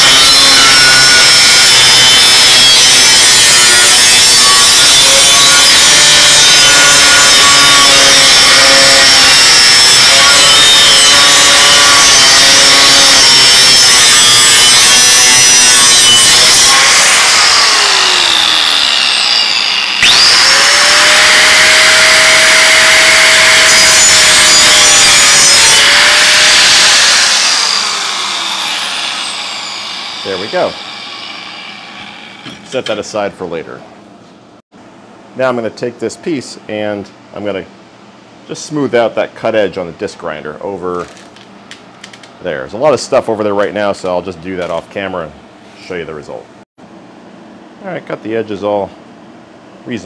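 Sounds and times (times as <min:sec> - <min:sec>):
angle grinder cutting metal: 0:00.0 - 0:32.8.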